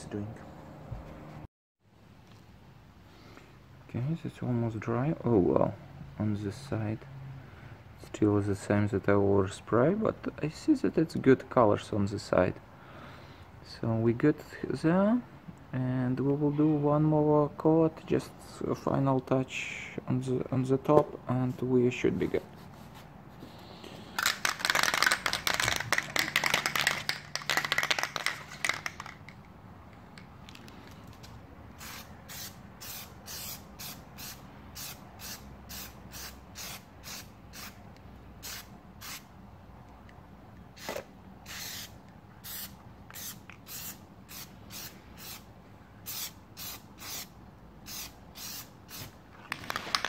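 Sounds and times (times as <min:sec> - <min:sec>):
aerosol can spraying hisses: 0:40.8 - 0:45.4.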